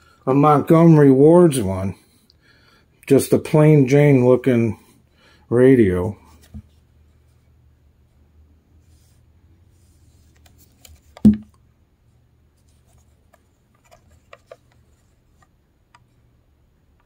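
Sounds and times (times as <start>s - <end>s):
plastic radio handling thump: 10.8s - 11.6s.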